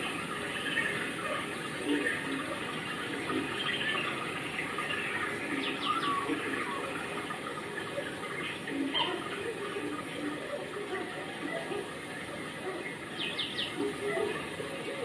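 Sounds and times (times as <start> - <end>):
bird chirps: 13.1 - 14.3.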